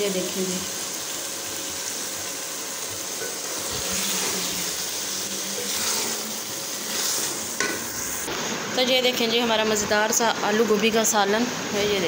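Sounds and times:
ladle scraping metal pot: 5.5 - 8.2.

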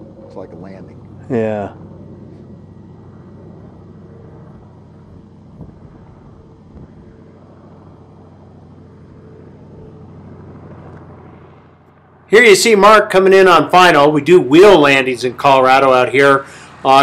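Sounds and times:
aircraft engine droning: 0.0 - 17.0.

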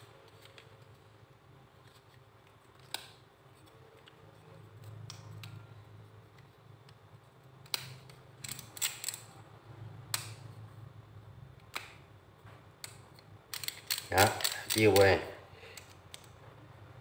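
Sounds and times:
ratcheting screwdriver clicks: 12.8 - 15.1.

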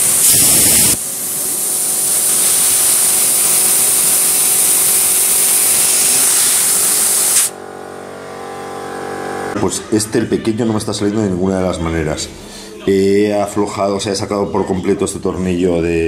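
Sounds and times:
compressed air hissing: 0.0 - 7.6.

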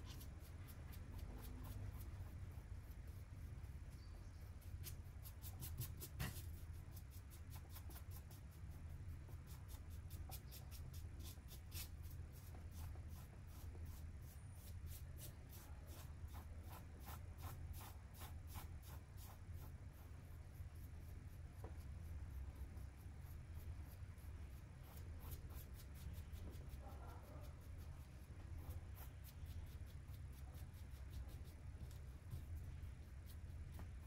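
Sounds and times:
low steady hum: 0.0 - 34.0
paintbrush swishing on canvas: 4.6 - 8.4, 9.5 - 20.0.

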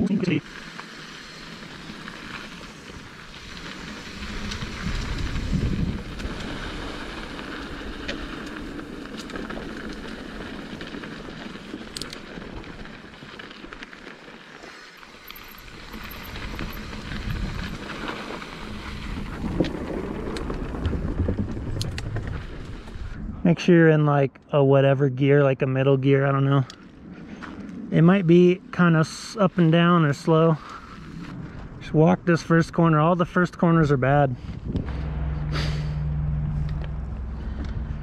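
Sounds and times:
bike tyres on dirt trail: 0.0 - 23.4, 25.7 - 38.0
low rumble: 3.0 - 11.0, 34.4 - 38.0.

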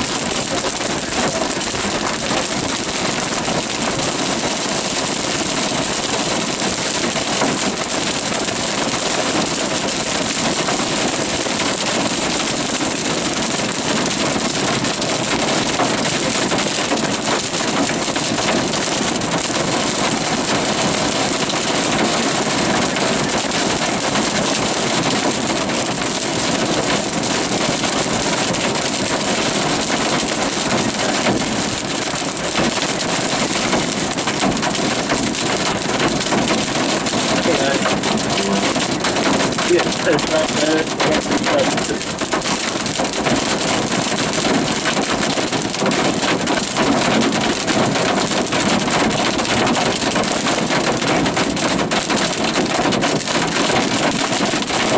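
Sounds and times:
heavy rain pelting vehicle: 0.0 - 54.9.

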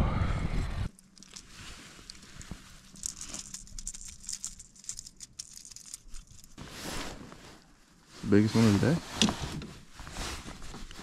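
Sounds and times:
crinkly rustling with clicks: 0.9 - 7.7, 8.3 - 11.0
jacket fabric brushing: 6.5 - 11.0.

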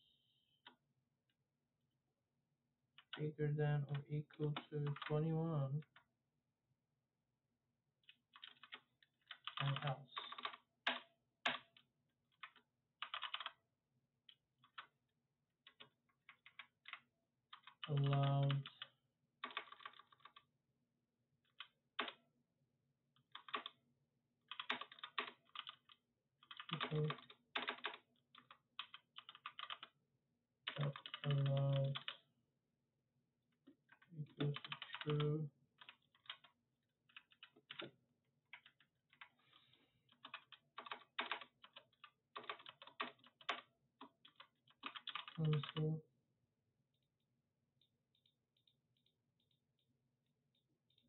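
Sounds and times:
computer keyboard typing: 4.5 - 5.2, 8.3 - 11.8, 12.4 - 13.6, 14.6 - 14.9, 15.6 - 20.4, 21.5 - 22.2, 23.3 - 23.8, 24.5 - 29.9, 30.7 - 32.2, 34.3 - 36.5, 40.1 - 45.8.

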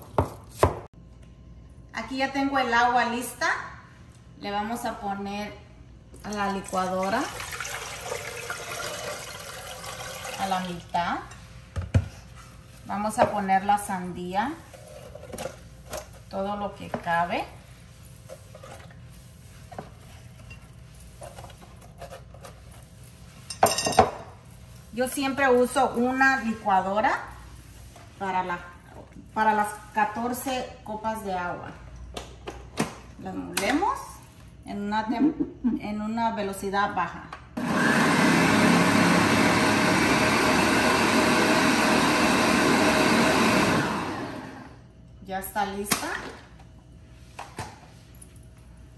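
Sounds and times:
blender running: 37.6 - 44.8.

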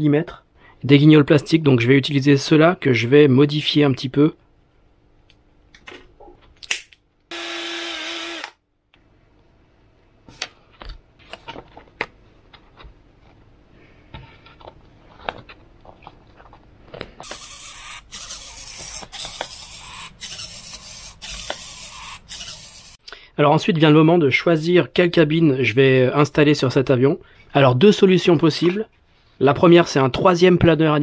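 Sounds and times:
small electric drill whining: 7.3 - 8.6, 17.2 - 23.0.

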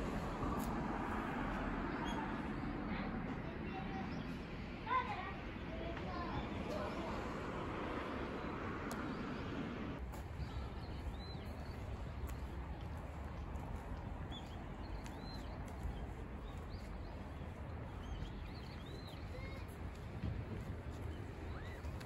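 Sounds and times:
footsteps on paved path: 0.0 - 3.5, 10.0 - 22.0
road traffic noise: 0.0 - 22.0
small birds chirping: 3.7 - 22.0.

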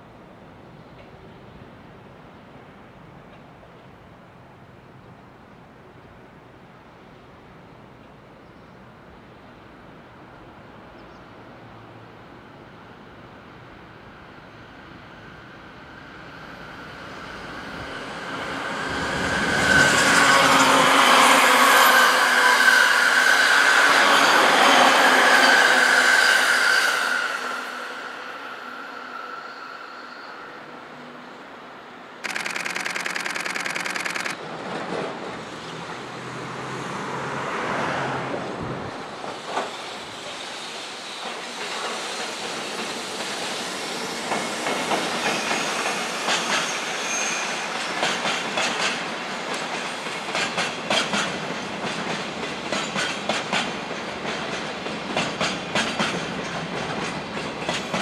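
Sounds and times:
electric train passing: 9.1 - 58.0
train wheel clicks: 32.2 - 34.4.

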